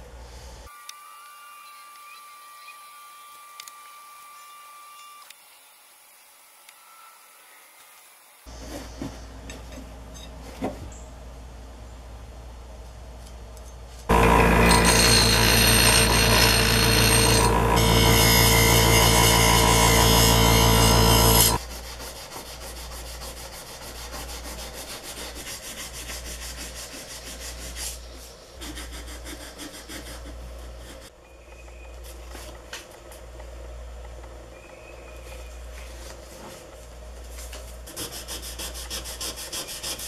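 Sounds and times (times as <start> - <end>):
loud machine drone: 14.1 - 21.6
sandpaper rubbing on steel file: 16.8 - 31.1, 37.8 - 40.0.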